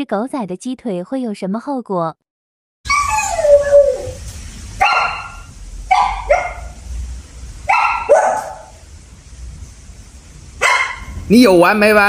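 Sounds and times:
dog barking: 4.8 - 6.8, 7.7 - 8.8, 10.6 - 11.2.

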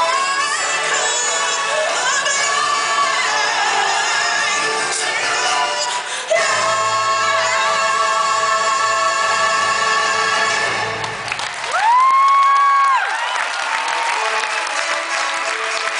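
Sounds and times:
choir singing with stage music: 0.0 - 11.7.

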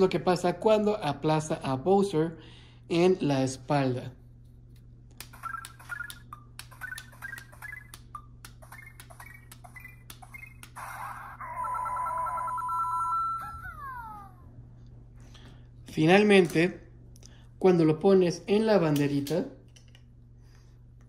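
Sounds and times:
warbling electronic tone: 5.3 - 14.5.

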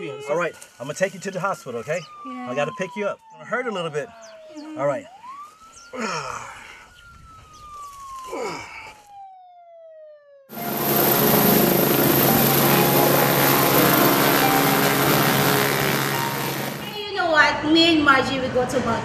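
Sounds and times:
emergency siren wail: 0.0 - 17.0
helicopter noise: 10.5 - 17.2.

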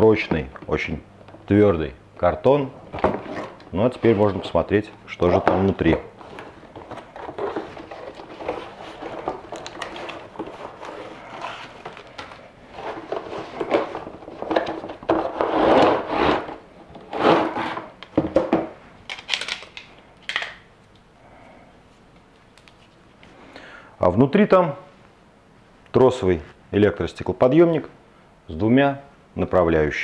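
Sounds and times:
cardboard rustling and scraping: 2.8 - 18.0.

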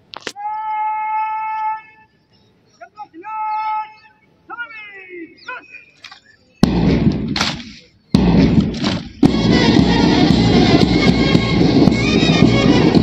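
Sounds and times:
loud music hits: 8.2 - 13.0
rhythmic music: 8.2 - 13.0.

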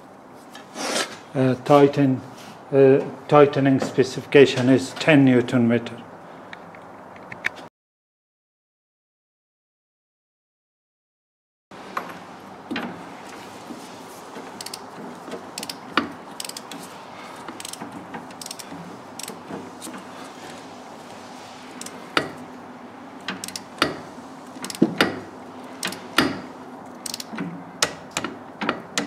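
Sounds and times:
ratchet wrench clicking: 14.6 - 14.9, 15.6 - 16.8, 17.6 - 19.4, 21.8 - 22.3, 23.3 - 24.0, 24.6 - 24.9, 25.8 - 26.3, 26.9 - 28.3.

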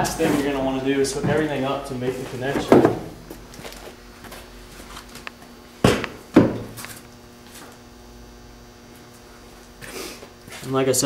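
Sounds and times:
steady electrical hum: 0.0 - 11.0
sharp knocks: 5.8 - 6.8.

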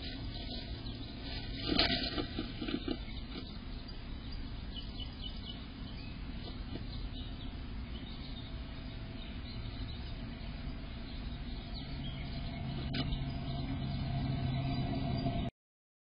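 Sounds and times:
microphone hiss and hum: 0.0 - 15.5
faint bird chirps: 2.6 - 15.4.

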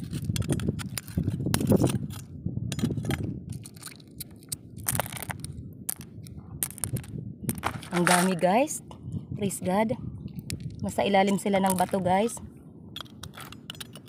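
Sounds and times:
knife scraping on coral rock: 13.0 - 14.0.

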